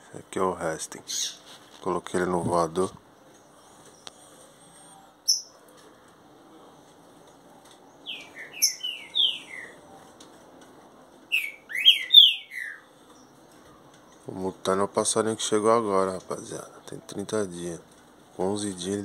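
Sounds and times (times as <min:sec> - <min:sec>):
high bird chirp: 0:05.2 - 0:05.6, 0:08.0 - 0:09.8, 0:11.3 - 0:13.4
bird whistling song: 0:08.0 - 0:09.8, 0:11.3 - 0:13.3.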